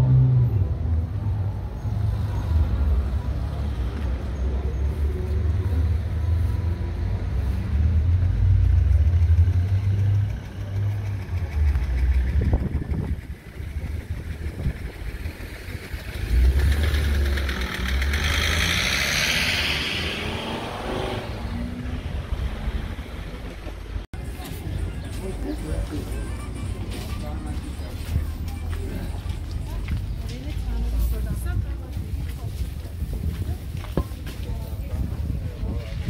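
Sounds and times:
cars driving by: 0:00.0 - 0:33.0
vehicle passing close: 0:04.9 - 0:23.8.

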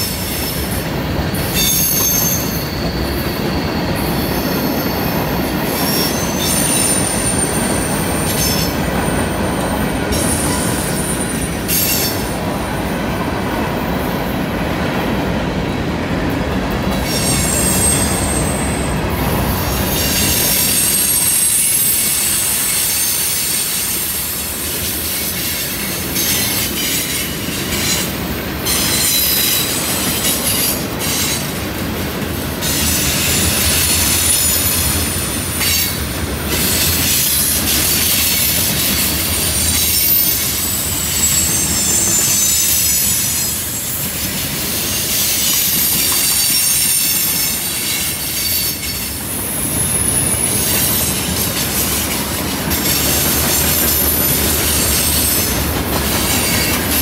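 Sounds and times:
train wheels squealing on rails: 0:00.0 - 0:57.0
low rumble of wheels on track: 0:47.2 - 0:57.0.

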